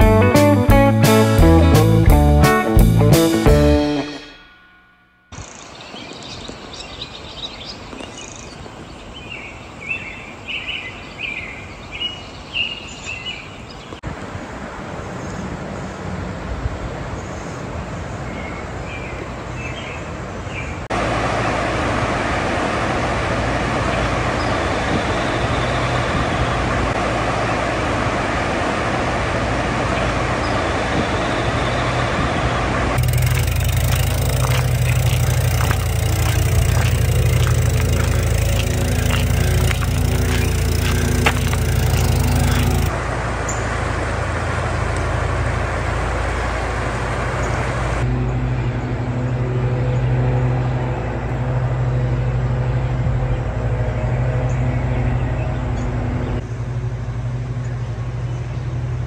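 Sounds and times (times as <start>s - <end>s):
songbirds chirping: 5.3s - 14.0s, 33.2s - 43.7s
bicycle tyres on gravel: 32.9s - 42.9s.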